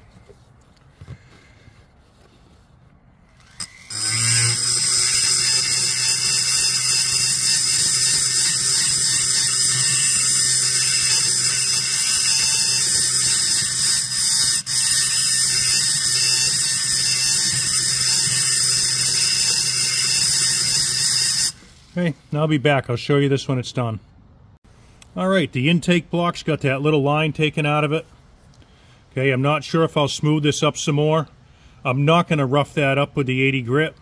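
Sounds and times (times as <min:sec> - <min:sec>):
rotary tool high whine: 0:03.2 - 0:22.0.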